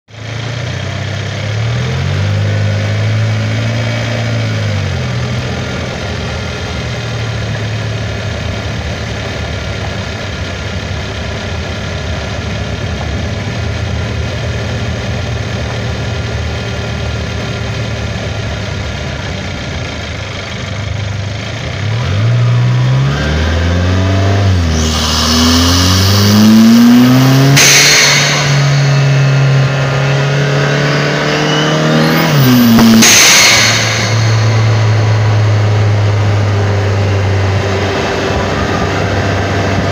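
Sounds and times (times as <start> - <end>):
car engine running: 0.1 - 39.9
turbo air hiss: 24.6 - 29.6
blow-off valve burst of air: 24.6 - 30.1, 32.0 - 36.1.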